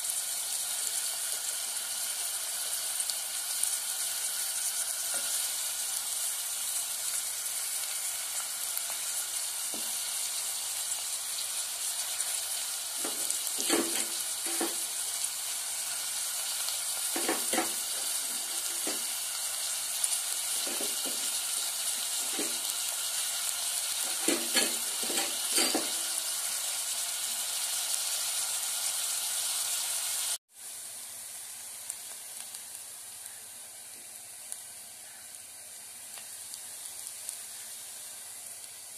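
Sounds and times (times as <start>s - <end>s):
onions sizzling in oil: 0.0s - 38.9s
quiet hiss: 30.6s - 38.9s.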